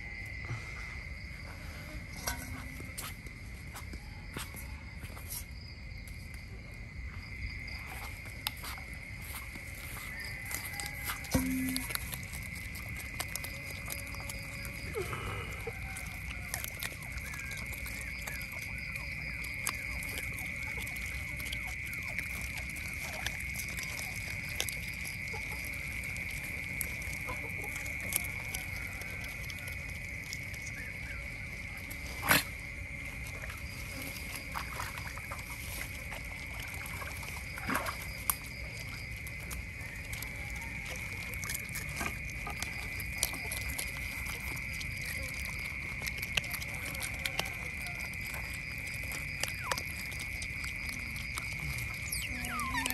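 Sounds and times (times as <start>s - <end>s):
otters chewing fish: 0.0s - 52.9s
high-pitched hum: 11.3s - 12.1s.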